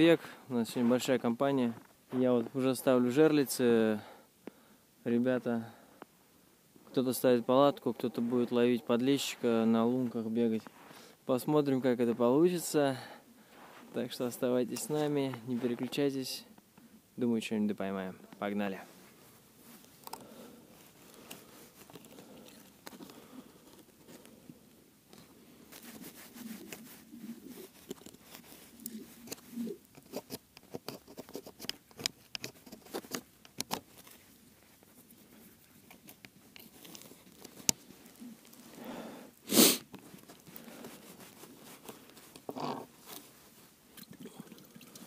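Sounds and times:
jacket sleeves rustling: 8.1 - 12.6, 13.4 - 16.0, 18.7 - 24.4, 25.2 - 29.8, 33.8 - 44.0.

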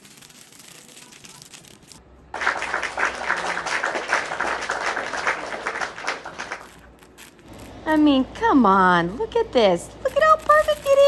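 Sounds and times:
crowd applause: 2.3 - 6.8.

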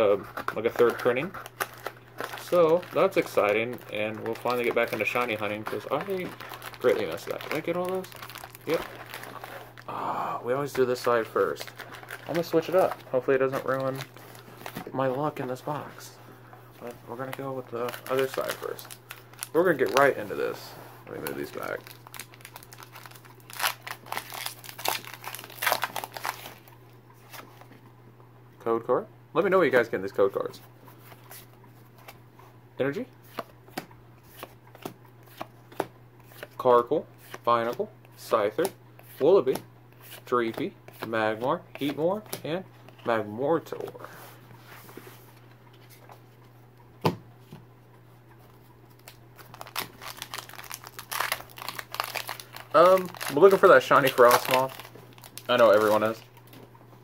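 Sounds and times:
foil wrapper tearing and crinkling: 1.3 - 9.8, 17.3 - 20.1, 21.3 - 26.7, 49.0 - 56.4.

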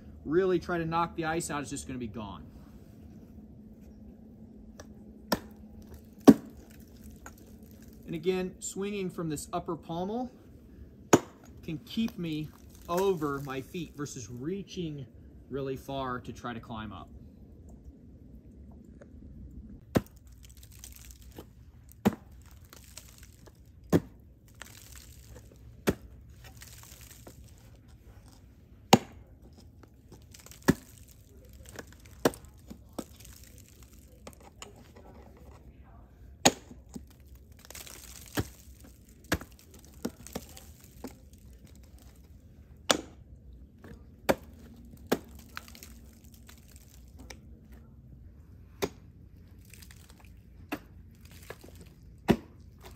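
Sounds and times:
ice tools chopping ice: 5.3 - 8.0, 11.1 - 14.2, 19.9 - 27.5, 28.9 - 29.3, 30.1 - 34.5, 36.4 - 42.2, 42.9 - 43.2, 44.2 - 47.1, 49.7 - 52.9
ice scraping and crunching: 5.3 - 10.3, 11.3 - 14.9, 19.9 - 35.7, 36.4 - 42.4, 44.3 - 47.3, 49.5 - 50.5, 51.1 - 52.9.

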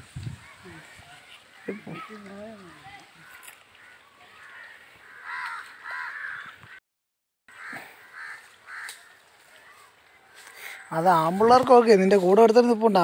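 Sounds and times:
crows cawing: 0.4 - 6.8, 7.5 - 11.4.

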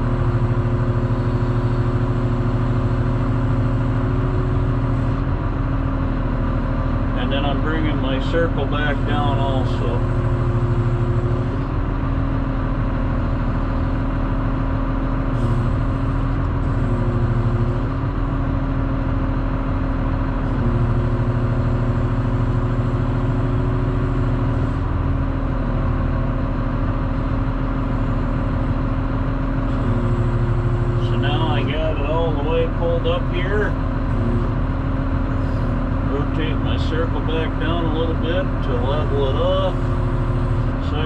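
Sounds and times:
motor grader engine hum: 0.0 - 41.0.

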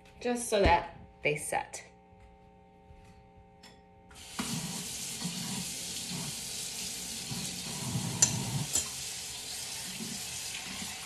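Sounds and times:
tap water running into sink: 4.2 - 11.0.

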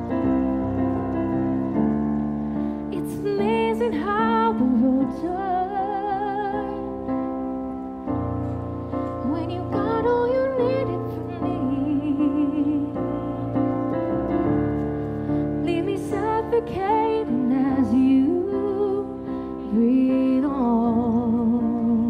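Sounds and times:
electric keyboard chords: 0.0 - 22.0
woman singing: 2.9 - 7.0, 9.2 - 13.9, 15.6 - 22.0.

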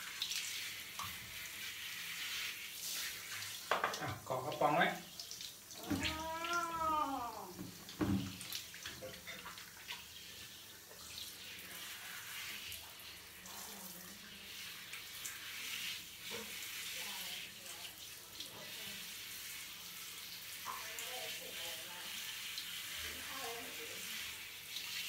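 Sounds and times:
shower spraying water: 0.0 - 25.0
cat meowing: 5.8 - 7.6.

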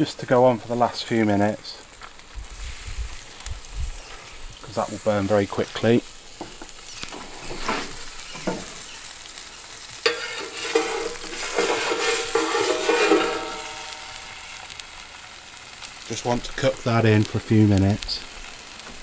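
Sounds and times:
fire crackling and sizzling: 0.0 - 19.0
metal peel scraping stone: 10.0 - 14.2.

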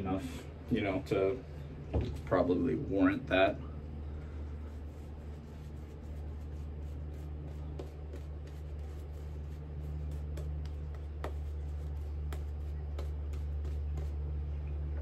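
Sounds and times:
steady low hum: 0.0 - 15.0
shaving brush bristle strokes: 4.5 - 14.3.

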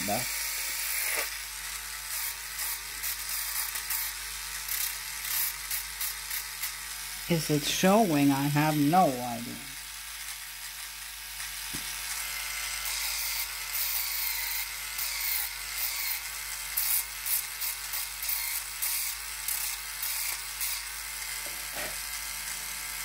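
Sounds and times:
electric nail file motor hum: 0.0 - 23.0
file grinding fingernail: 2.1 - 6.9, 12.7 - 22.2.

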